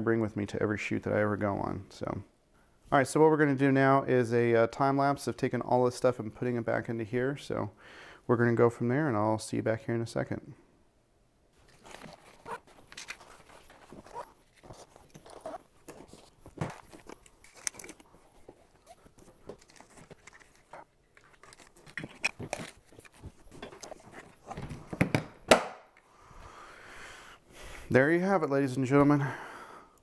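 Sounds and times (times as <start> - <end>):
camera gear clattering: 11.7 - 24.5.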